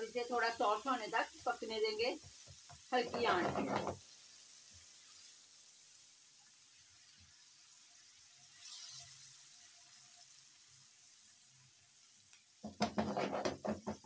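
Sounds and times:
sauce sizzling and bubbling: 0:00.0 - 0:14.0
spatula stirring in pan: 0:02.2 - 0:06.2, 0:12.6 - 0:14.0.

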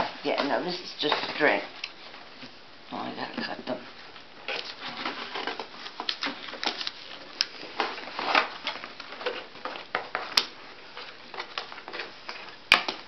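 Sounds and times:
toy packaging rustling: 0:04.4 - 0:12.6.

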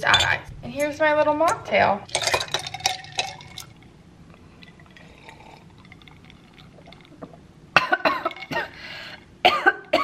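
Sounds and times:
ice cubes clinking in a glass: 0:02.1 - 0:03.7.

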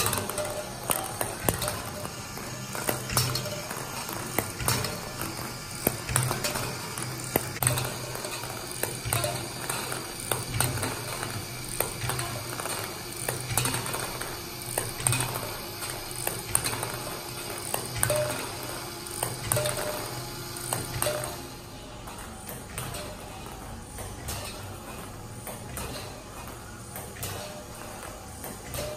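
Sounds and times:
ping pong balls clicking on metal track: 0:00.0 - 0:21.5.

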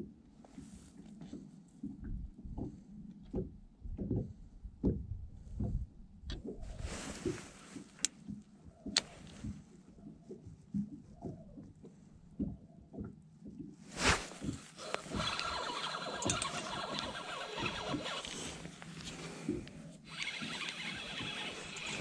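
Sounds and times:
sharp clicks: 0:14.8 - 0:19.1, 0:20.1 - 0:22.0.

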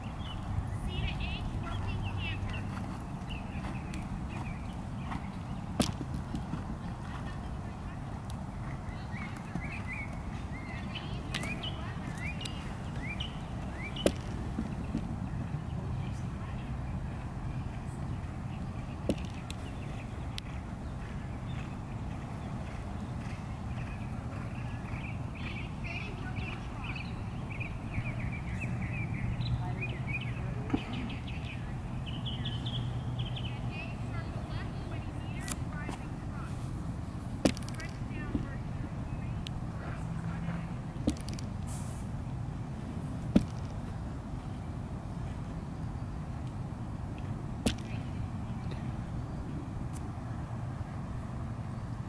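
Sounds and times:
bird chirping: 0:00.0 - 0:07.9, 0:08.6 - 0:36.5
steady low hum: 0:00.0 - 0:52.0
steady low rumble: 0:00.0 - 0:52.0.

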